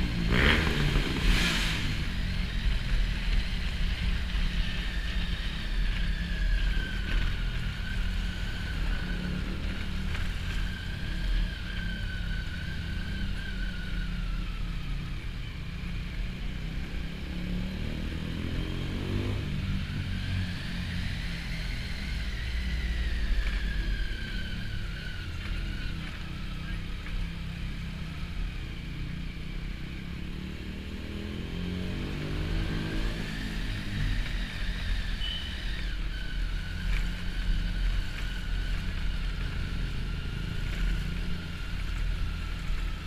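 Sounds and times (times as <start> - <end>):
wind and road noise: 0.0 - 43.0
motorcycle engine running: 15.2 - 43.0.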